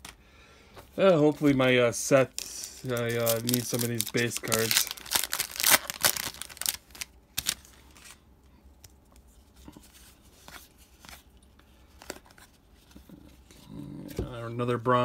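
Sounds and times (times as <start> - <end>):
card pack wrapper crackling: 2.2 - 8.2
cards rustling and ticking: 2.2 - 8.2.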